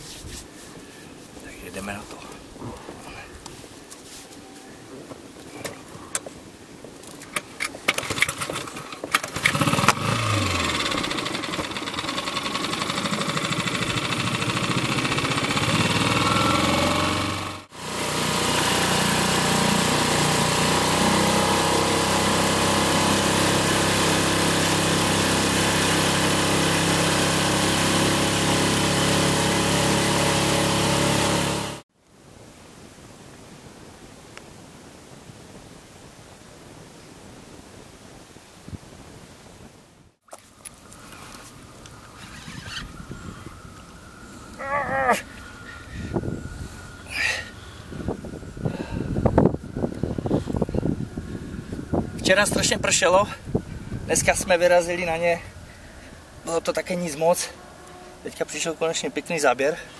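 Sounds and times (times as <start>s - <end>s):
outboard motor running: 8.0s - 31.8s.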